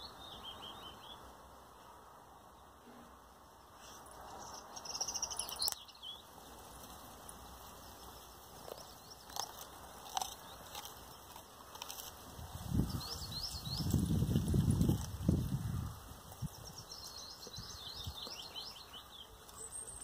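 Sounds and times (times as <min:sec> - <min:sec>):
birds chirping: 0:00.0 - 0:02.8, 0:03.5 - 0:20.0
dog crunching on broccoli stalk: 0:08.5 - 0:12.6, 0:13.8 - 0:15.3.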